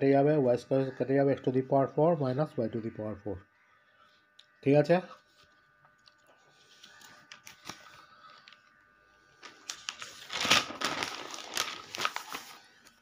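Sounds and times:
paper rustling and crinkling: 6.5s - 8.8s, 9.4s - 13.0s.

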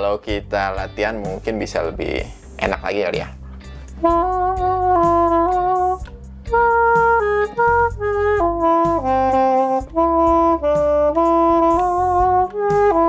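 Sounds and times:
reed instrument slow melody: 3.4s - 13.0s.

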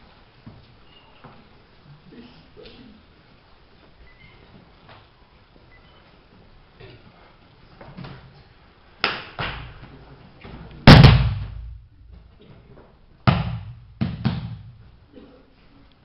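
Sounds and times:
bodies slapping a mat: 10.9s - 12.2s, 13.3s - 14.8s.

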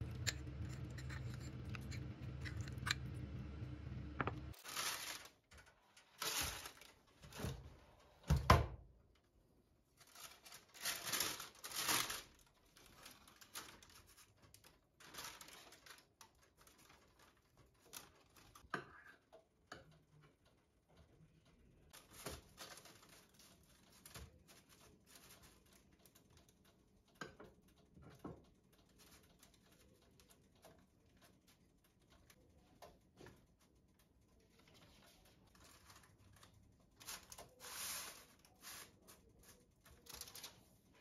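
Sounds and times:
low steady hum: 0.0s - 4.6s
baking paper rustling and tearing: 4.5s - 7.9s, 10.0s - 18.7s, 21.9s - 25.8s, 34.6s - 41.0s.

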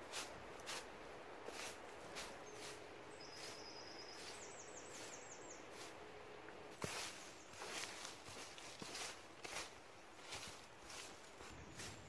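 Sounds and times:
broom sweeping dirt path: 0.0s - 12.0s
small bird singing: 2.3s - 5.9s.

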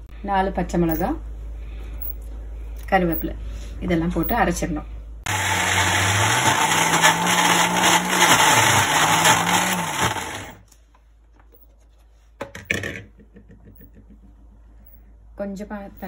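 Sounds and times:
mixer grinder motor: 5.3s - 10.6s.

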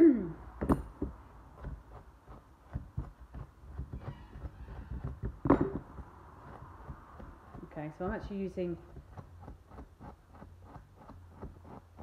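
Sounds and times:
knock: 3.8s - 5.9s
comb dragged through fur: 6.1s - 12.0s.

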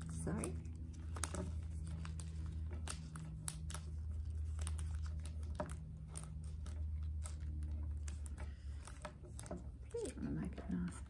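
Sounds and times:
paper crinkling and creasing: 0.0s - 11.0s.

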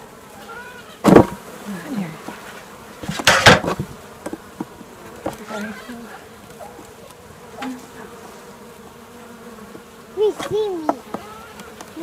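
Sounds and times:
bees buzzing: 0.0s - 12.0s
hive tool squeaking on wood: 3.0s - 8.1s, 9.7s - 12.0s.

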